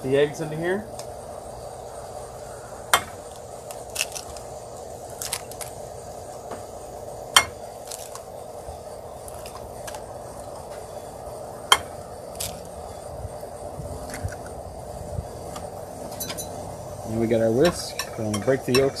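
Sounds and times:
eggshell cracking: 0:03.3 - 0:04.5, 0:05.1 - 0:05.7, 0:07.8 - 0:08.3.

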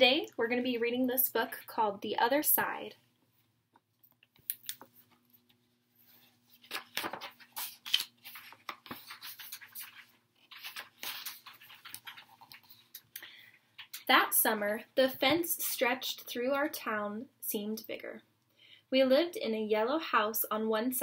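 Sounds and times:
picture book rustling and clicking: 0:03.8 - 0:13.1, 0:13.7 - 0:14.1.

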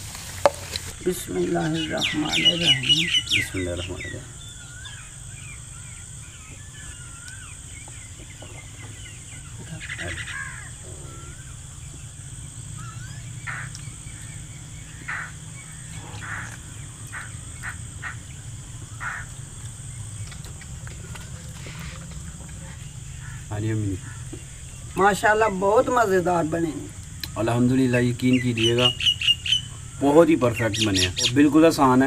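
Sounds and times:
birds chirping: 0:00.0 - 0:32.0
harsh bird calls: 0:00.0 - 0:32.0
steady low hum: 0:00.0 - 0:32.0
raspy bird call: 0:01.4 - 0:07.7, 0:08.6 - 0:11.6, 0:12.7 - 0:19.4, 0:28.2 - 0:31.5.

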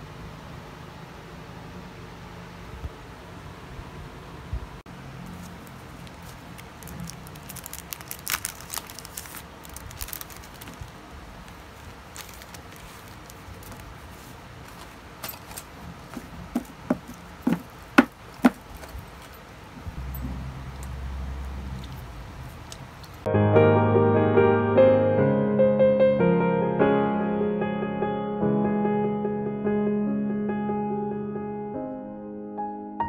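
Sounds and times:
sharp knocks: 0:16.5 - 0:18.6.

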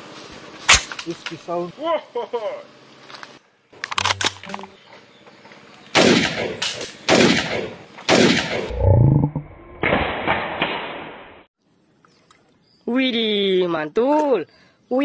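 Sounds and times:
gunshot sound effects: 0:06.0 - 0:08.7, 0:09.8 - 0:11.5
low rising boom: 0:08.7 - 0:10.2.

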